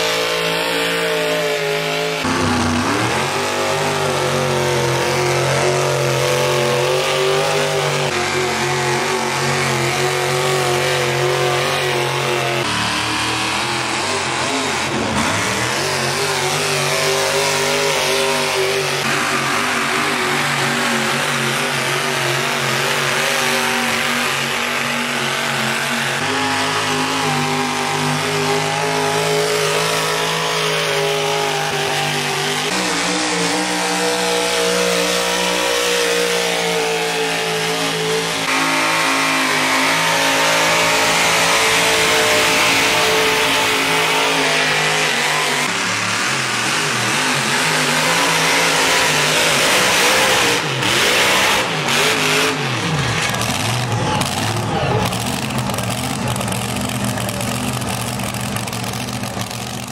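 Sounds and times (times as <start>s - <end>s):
truck engines at full throttle: 0.0s - 59.9s.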